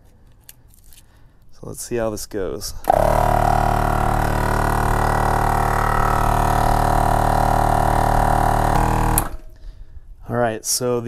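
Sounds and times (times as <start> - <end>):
air compressor running: 2.8 - 9.6.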